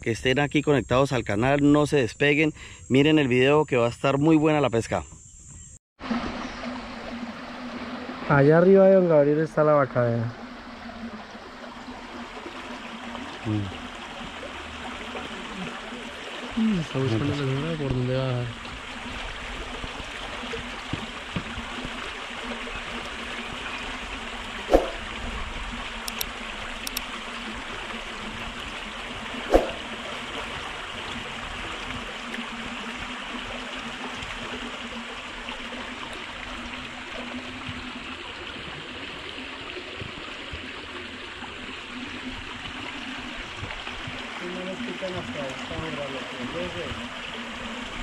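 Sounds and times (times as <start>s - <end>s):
creek water running over rocks: 6.0s - 48.0s.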